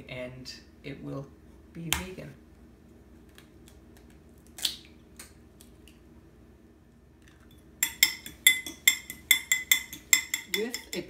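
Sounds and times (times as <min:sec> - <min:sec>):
fork clinking against glass bowl: 0:07.8 - 0:11.0.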